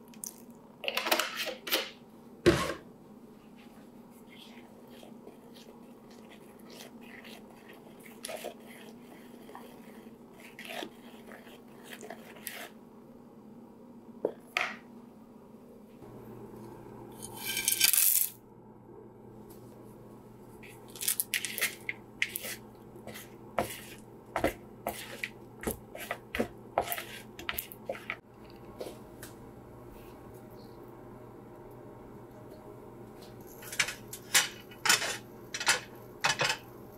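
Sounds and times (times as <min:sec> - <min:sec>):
spoon stirring batter in a bowl: 0:04.1 - 0:12.9, 0:20.6 - 0:29.0
chocolate chips pouring into bowl: 0:17.4 - 0:18.4.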